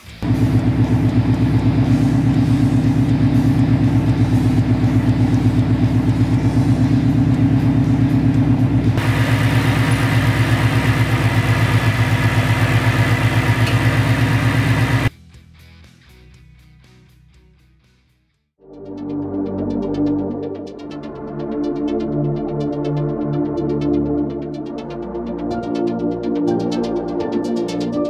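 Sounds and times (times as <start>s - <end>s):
car engine idling: 0.2s - 15.1s
supercharger whine: 0.2s - 15.1s.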